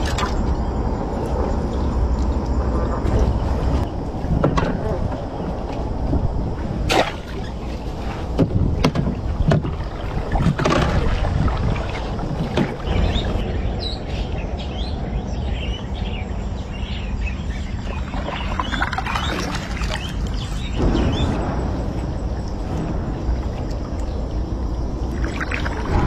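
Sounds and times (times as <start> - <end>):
low rumble on a boat: 0.0 - 26.0.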